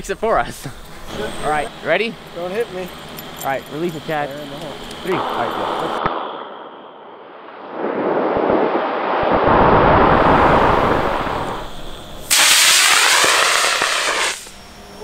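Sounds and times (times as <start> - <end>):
sharp phasing rocket hiss: 5.0 - 14.8
rocket motor rushing hiss: 8.8 - 15.0.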